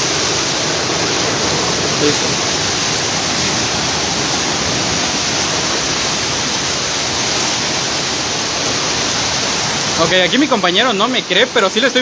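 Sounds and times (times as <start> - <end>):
heavy rain pouring on street: 0.0 - 12.0.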